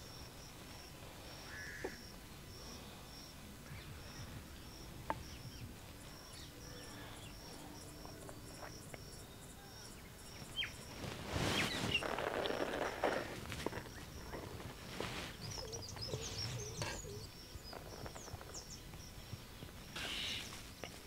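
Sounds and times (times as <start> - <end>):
insect chirping: 0.0 - 21.0
rustling and scuffing: 10.4 - 21.0.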